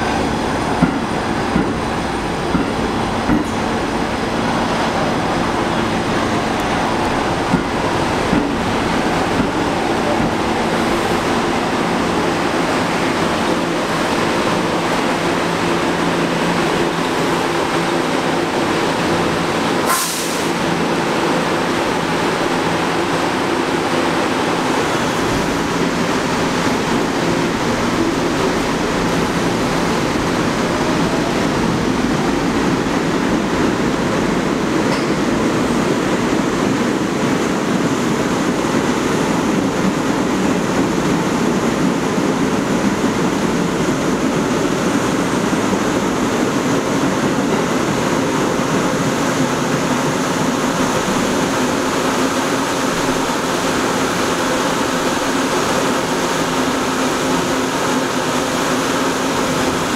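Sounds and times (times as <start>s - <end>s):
subway train rumble and hum: 0.0s - 59.9s.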